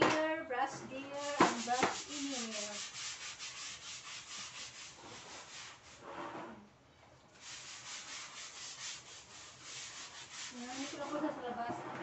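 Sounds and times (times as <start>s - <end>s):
scrub brush on wet tiled floor: 1.0s - 6.1s, 7.3s - 11.7s.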